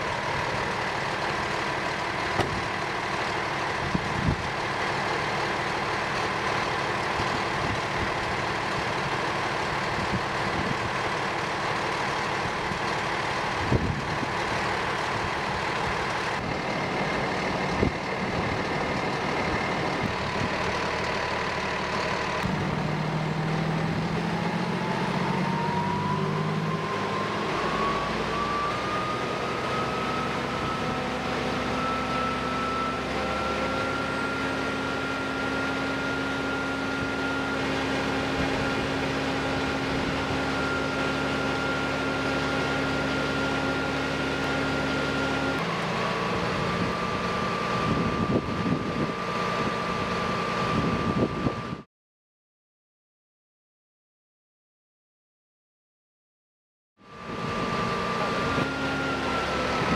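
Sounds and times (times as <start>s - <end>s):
fire pump mechanical drone: 0.0s - 51.9s, 57.0s - 59.9s
rising pump whine: 0.0s - 51.9s, 57.0s - 59.9s.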